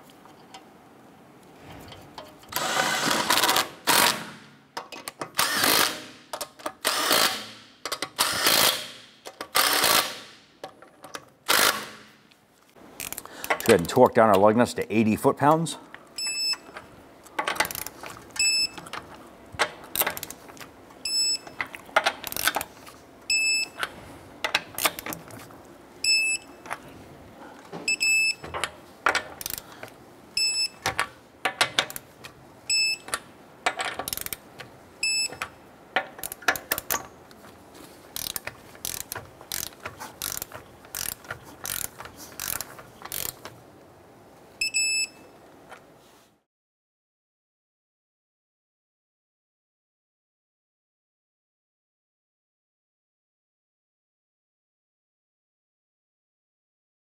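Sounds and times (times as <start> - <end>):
torque wrench ratcheting clicks: 22.2 - 22.6, 29.4 - 29.6, 34.0 - 34.4, 36.2 - 37.0, 38.2 - 43.5.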